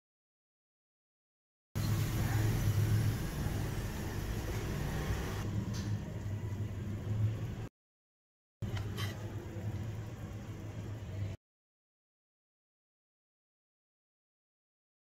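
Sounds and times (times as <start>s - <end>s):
low steady hum: 8.6s - 11.4s.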